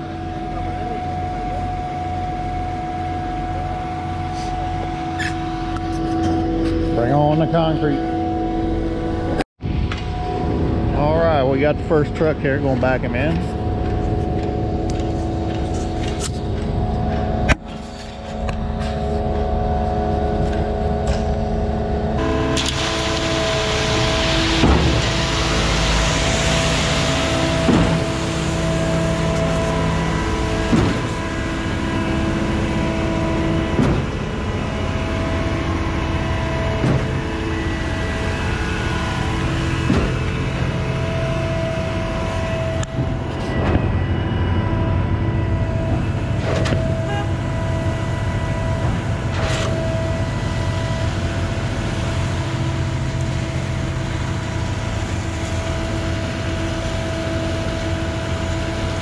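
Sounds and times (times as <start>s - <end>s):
concrete pump truck droning: 0.0s - 59.0s.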